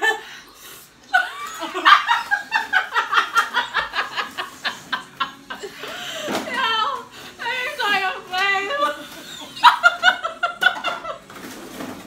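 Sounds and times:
woman laughing hard: 0:01.1 - 0:06.5, 0:08.8 - 0:11.3.

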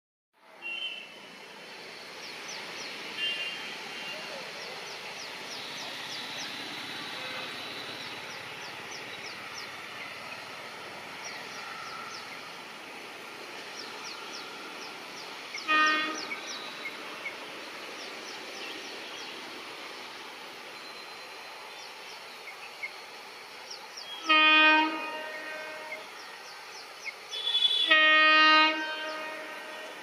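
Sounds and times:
approaching train noise: 0:00.4 - 0:30.0
birds chirping: 0:02.0 - 0:20.2
train horn blast: 0:06.7 - 0:08.2, 0:15.6 - 0:17.4, 0:24.1 - 0:26.2, 0:27.3 - 0:30.0.

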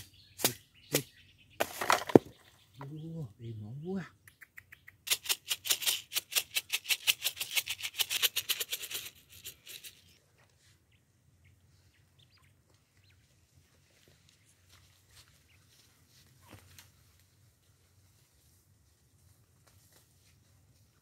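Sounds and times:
bird pecking at grain: 0:04.3 - 0:10.2
rice rattling in plastic packet: 0:05.1 - 0:10.1.

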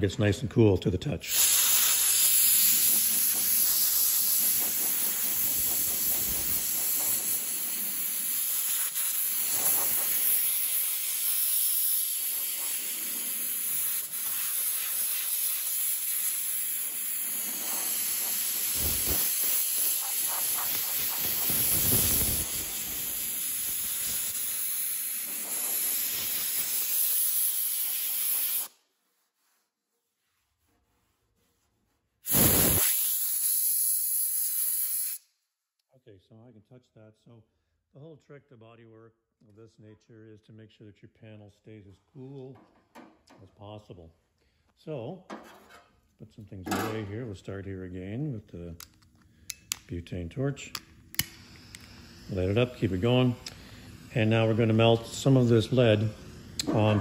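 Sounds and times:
compressed air hissing: 0:01.3 - 0:28.8, 0:32.2 - 0:35.2, 0:50.9 - 0:57.0.

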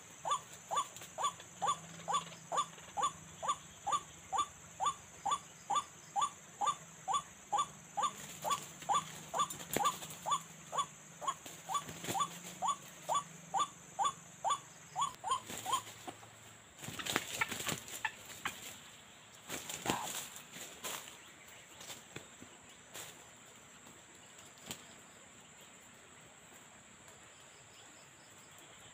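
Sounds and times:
waterhen calling: 0:00.0 - 0:16.3.

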